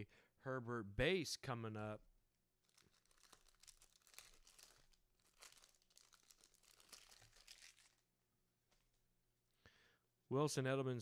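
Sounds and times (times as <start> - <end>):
wrapper crinkling and tearing: 2.6 - 8.1.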